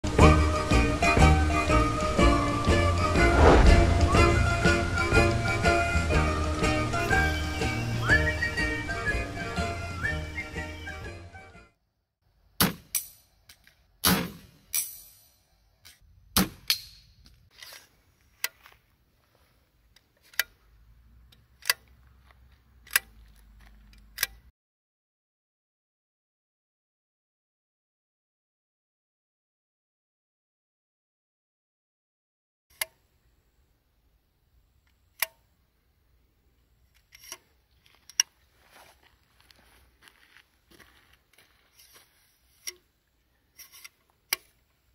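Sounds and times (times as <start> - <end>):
slingshot firing crack: 3.2 - 4.3, 12.6 - 13.1, 14.0 - 15.0, 16.4 - 17.0
sharp metal clicks: 21.3 - 21.9, 23.9 - 24.5
metallic clicks of sliding stock: 21.3 - 22.0, 22.8 - 24.5, 36.9 - 37.5.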